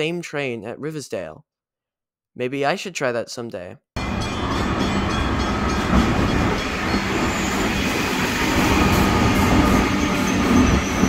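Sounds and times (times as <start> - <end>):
train wheels rumbling on rail: 4.0 - 11.0
faint high squeal: 6.6 - 11.0.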